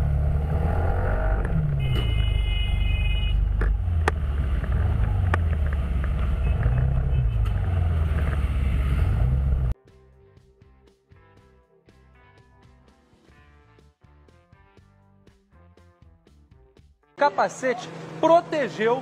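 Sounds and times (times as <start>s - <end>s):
engine and wind rumble: 0.0s - 2.4s, 3.2s - 9.8s
high steady horn tone: 1.7s - 3.7s, 6.3s - 7.8s.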